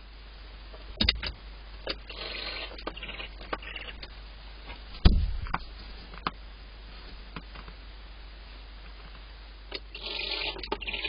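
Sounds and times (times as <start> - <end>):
steady background noise: 0.0 - 11.0
owls scratching on wood shavings: 2.1 - 3.9
thump on wooden nest box: 5.0 - 5.6.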